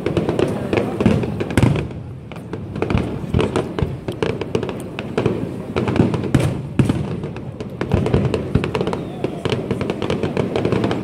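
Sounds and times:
fireworks low thuds: 0.0 - 11.0
fireworks pops and crackles: 0.0 - 11.0.

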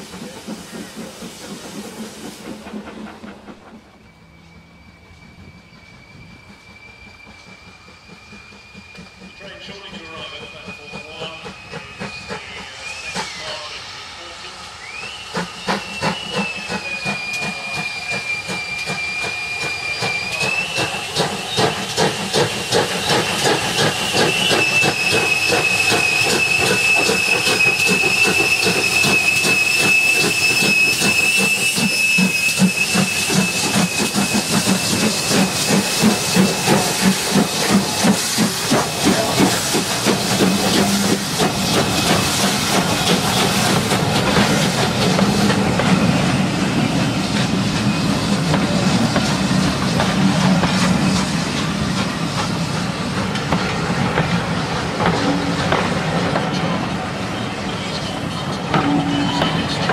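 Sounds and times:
train wheels clattering: 0.0 - 13.6, 14.9 - 59.9
steam exhaust beats: 0.0 - 59.9
steam whistle: 23.0 - 46.4, 58.7 - 59.9.

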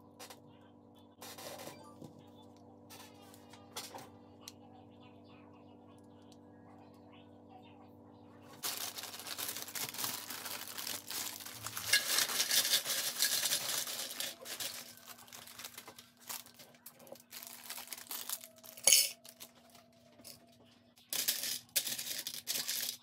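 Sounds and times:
plastic pieces clattering into tray: 8.6 - 19.5, 21.1 - 23.0
plastic pieces clicking: 21.1 - 23.0.

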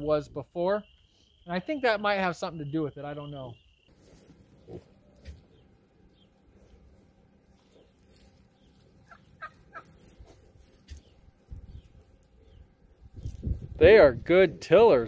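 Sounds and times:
rustling in straw: 3.9 - 15.0
piglets grunting squeakily: 4.6 - 5.0.

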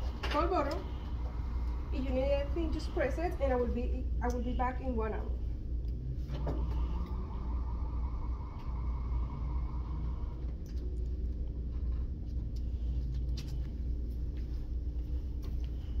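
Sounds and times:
low room rumble: 0.0 - 16.0.

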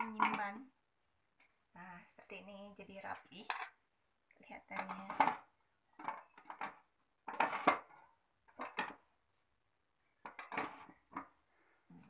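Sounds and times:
hard plastic clicking and clattering: 4.7 - 9.1.

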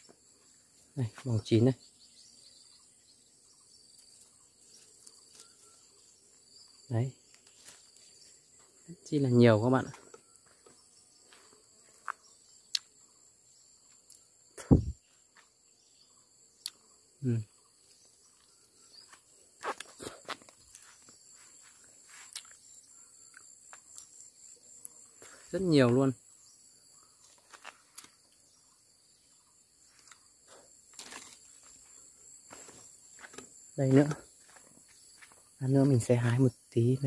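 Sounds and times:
insects droning: 0.0 - 37.0
twigs and leaves clicking: 4.0 - 5.8, 27.2 - 28.3, 30.9 - 35.4.

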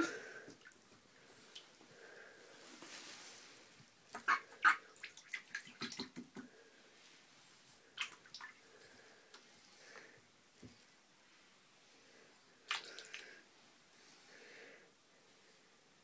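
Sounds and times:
duckling splashing in shallow water: 4.2 - 6.3.

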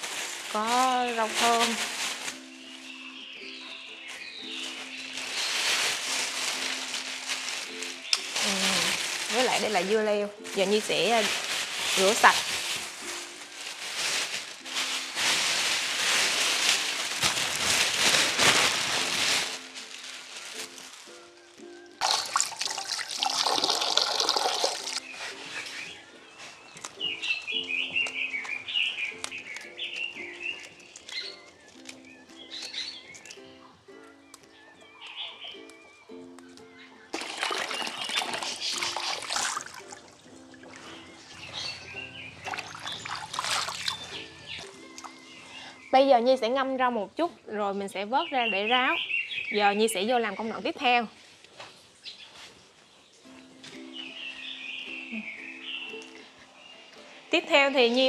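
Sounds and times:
faint background music: 0.0 - 58.0
water splashing and running: 5.2 - 10.0, 10.6 - 20.6, 22.0 - 25.0, 37.2 - 45.1
water splashing in a basin: 22.0 - 25.0, 37.2 - 40.8, 42.4 - 44.1.

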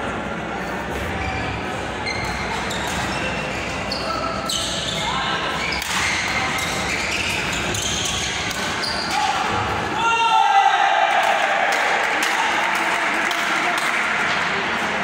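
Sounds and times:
shoes squeaking on court: 0.9 - 9.3.

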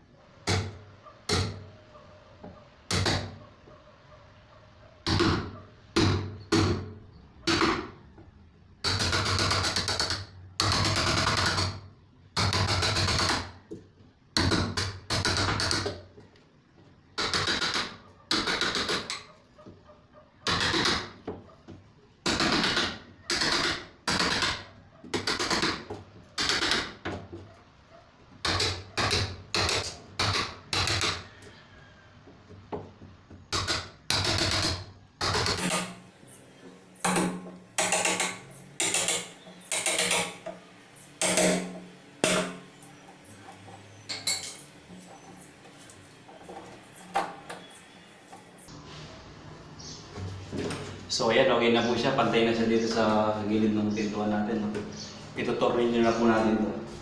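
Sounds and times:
chisel struck into wood: 0.4 - 1.6, 41.2 - 42.6.

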